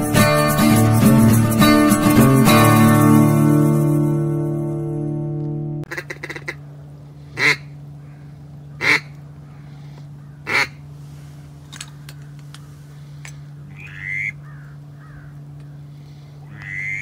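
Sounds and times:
steady low hum: 0.0 - 17.0
duck call quacks: 5.9 - 6.6, 7.4 - 7.7, 8.8 - 9.2, 10.4 - 10.8, 13.7 - 15.3, 16.5 - 17.0.

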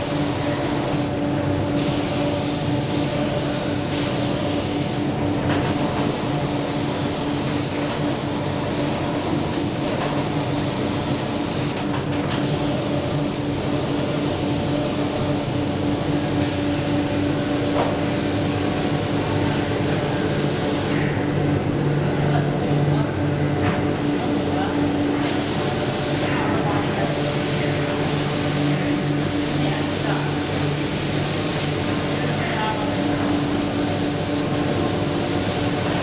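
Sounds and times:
spray gun hissing: 0.0 - 1.1, 1.7 - 5.0, 9.6 - 11.8, 12.4 - 15.7, 27.1 - 36.0.

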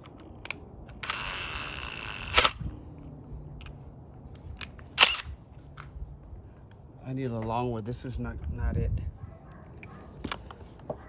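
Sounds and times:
sharp crack: 4.6 - 5.3.

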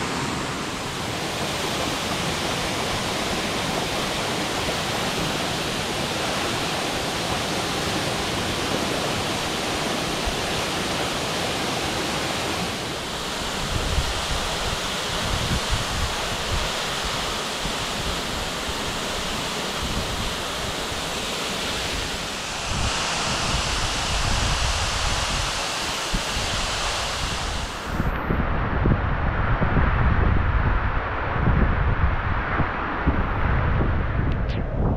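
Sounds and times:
waterfall rushing: 0.0 - 28.1
wind buffeting microphone: 13.4 - 20.5, 21.9 - 34.9.

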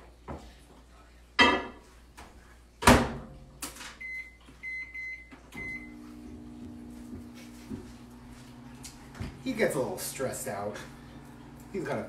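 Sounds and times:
microwave oven humming: 4.0 - 12.0.

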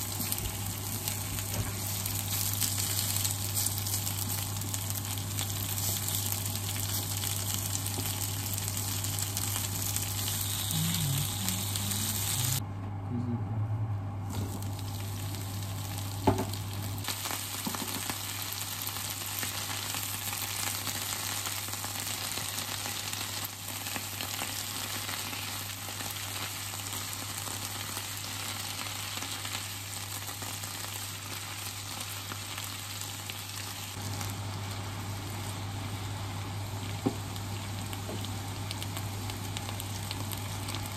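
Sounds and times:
food sizzling in a frying pan: 0.0 - 12.6, 14.3 - 40.9
steady low hum: 0.0 - 17.1.

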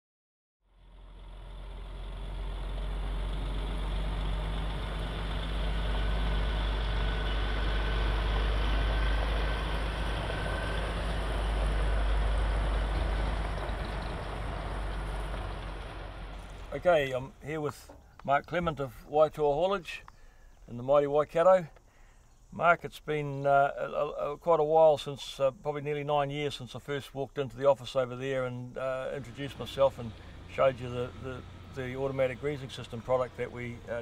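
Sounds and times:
diesel truck engine rumbling: 0.7 - 34.0.

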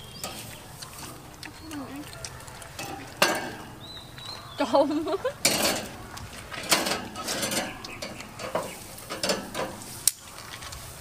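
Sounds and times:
dishes and utensils clattering: 2.7 - 3.8, 5.3 - 9.9.

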